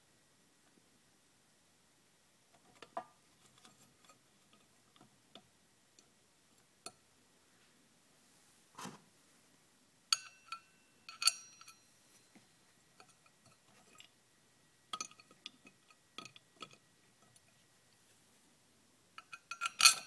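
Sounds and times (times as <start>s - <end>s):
steel parts clinking on sprocket: 10.1s - 11.8s, 19.2s - 20.0s.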